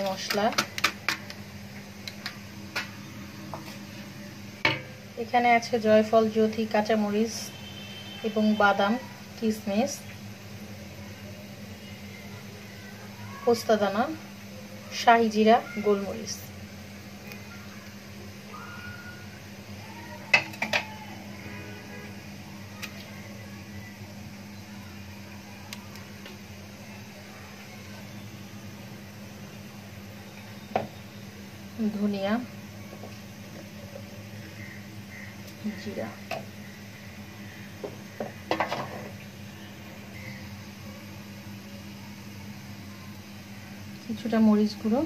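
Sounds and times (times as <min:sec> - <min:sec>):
steady low hum: 0:00.0 - 0:45.0
knocks on a steel pot: 0:04.6 - 0:04.9.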